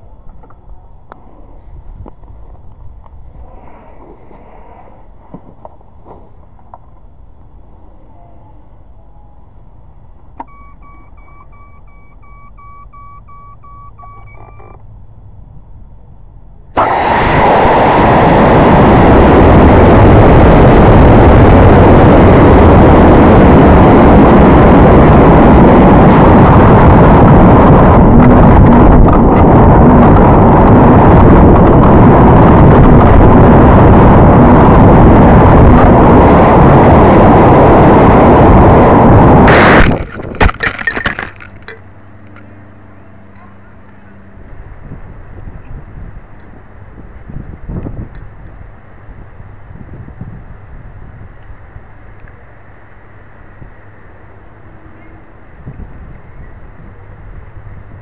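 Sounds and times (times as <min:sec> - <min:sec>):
wind noise on microphone: 0:00.0 - 0:07.0, 0:16.7 - 0:42.6, 0:44.3 - 0:52.4, 0:53.3 - 0:58.0
short electronic beeping: 0:10.4 - 0:14.8
rocket motor igniting: 0:16.7 - 0:41.7.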